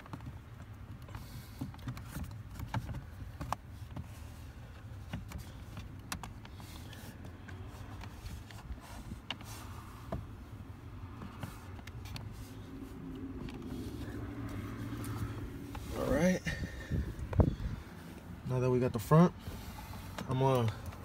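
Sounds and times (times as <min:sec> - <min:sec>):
steady low rumble: 0:06.8 - 0:21.0.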